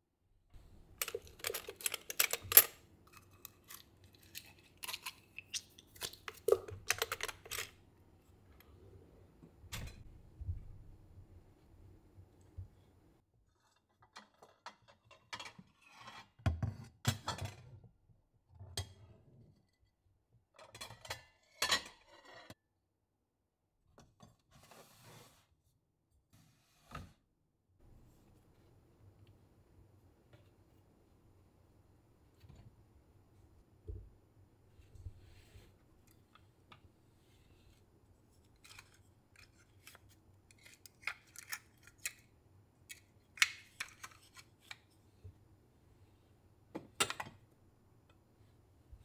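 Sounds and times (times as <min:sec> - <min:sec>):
cutlery rattling in a drawer: 0:01.0 - 0:02.8.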